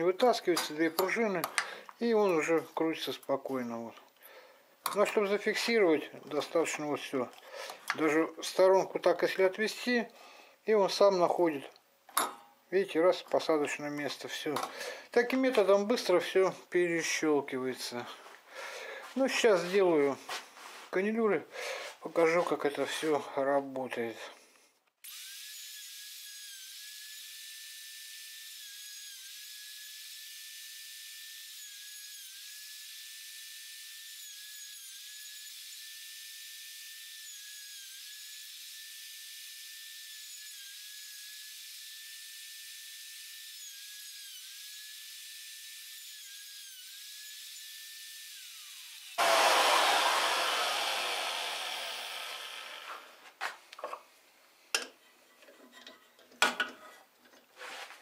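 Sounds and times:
router whining: 37.2 - 53.2.

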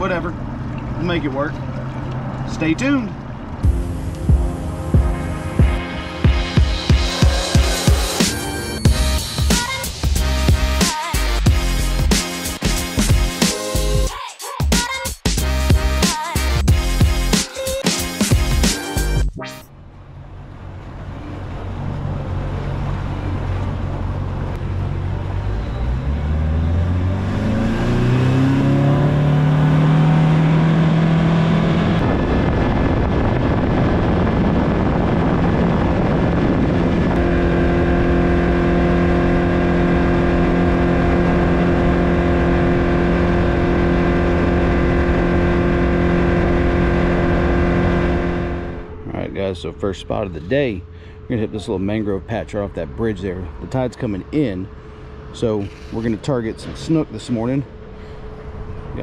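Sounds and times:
wind and water rushing: 0.0 - 8.8, 20.2 - 49.0
outboard motor: 0.0 - 14.1, 18.0 - 59.0.

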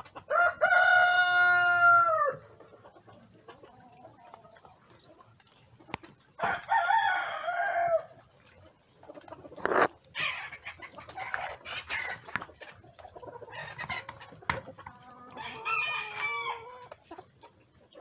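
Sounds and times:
chickens clucking: 0.0 - 18.0
rooster crowing: 0.3 - 2.4, 6.4 - 8.1, 15.4 - 16.8.

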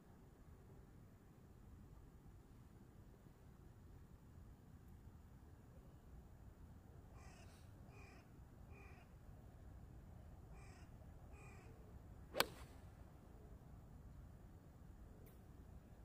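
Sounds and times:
crow cawing: 7.2 - 9.1, 10.5 - 11.7
golf club striking ball: 12.3 - 12.6.

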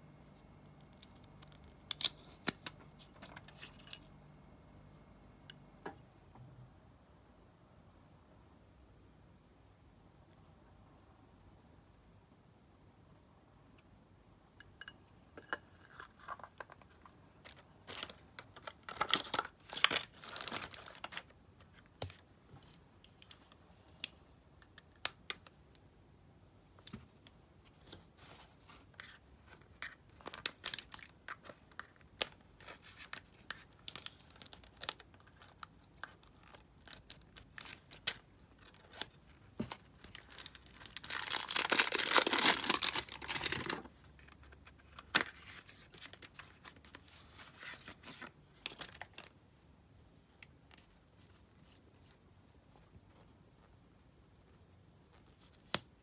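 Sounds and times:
plastic wrappers crinkling and tearing: 17.4 - 21.3, 29.8 - 49.3.

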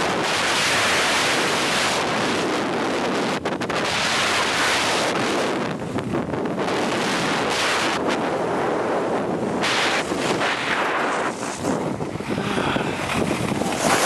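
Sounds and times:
wind rushing over microphone: 0.0 - 14.0
skis scraping snow: 9.6 - 11.9, 13.1 - 14.0.

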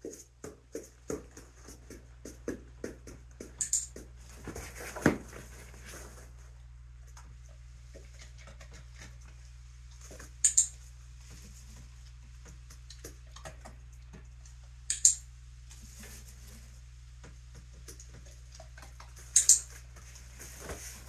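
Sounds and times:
training clicker clicking: 3.6 - 3.9, 10.4 - 10.7, 14.9 - 15.2.

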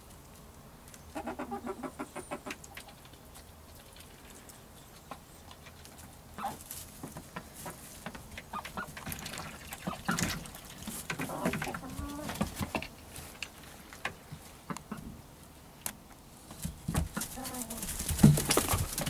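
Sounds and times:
hens clucking: 1.1 - 4.2, 4.9 - 13.0, 14.0 - 15.3, 17.0 - 19.0
rustling and pecking in straw: 2.4 - 14.8, 16.5 - 19.0.

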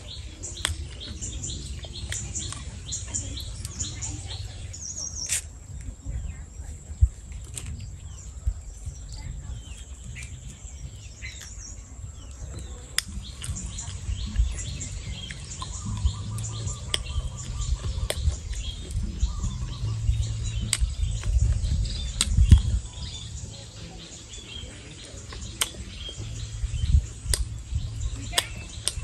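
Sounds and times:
birds chirping: 0.0 - 29.0
low rumble: 0.0 - 29.0
sharp clicks: 25.3 - 26.2, 26.8 - 29.0.

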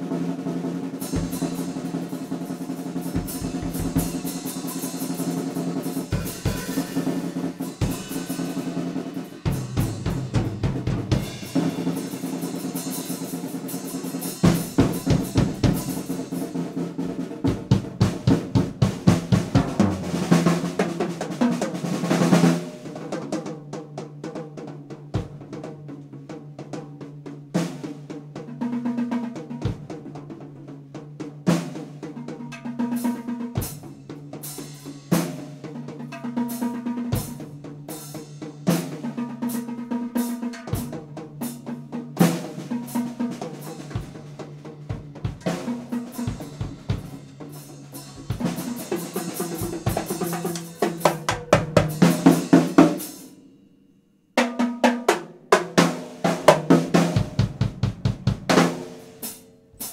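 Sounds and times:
acoustic drum kit played hard: 0.0 - 53.7, 54.3 - 59.9.

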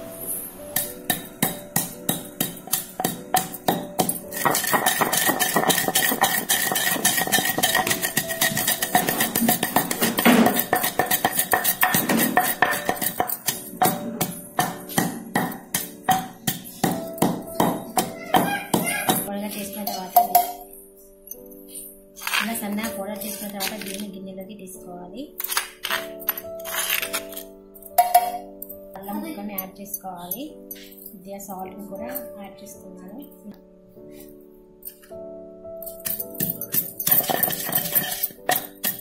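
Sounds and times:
pestle pounding seeds in stone mortar: 0.8 - 19.3, 35.9 - 39.0.

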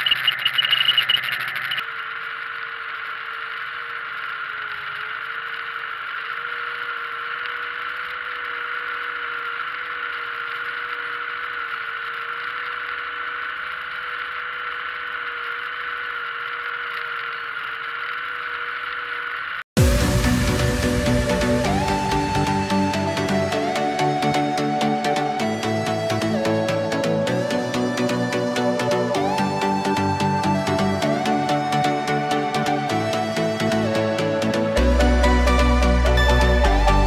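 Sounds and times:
tractor engine droning: 19.8 - 37.0.

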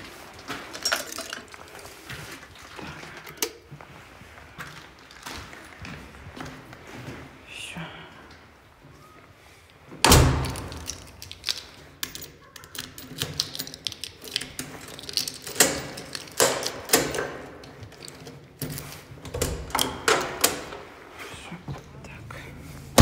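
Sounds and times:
clattering clicks and knocks: 0.0 - 1.9, 10.0 - 20.9.

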